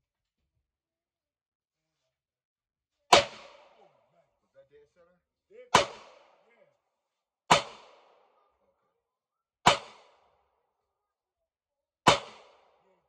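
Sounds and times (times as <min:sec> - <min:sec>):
pistol shots with echo: 0:03.1 - 0:04.1, 0:05.7 - 0:06.7, 0:07.5 - 0:08.6, 0:09.6 - 0:10.4, 0:12.0 - 0:13.0.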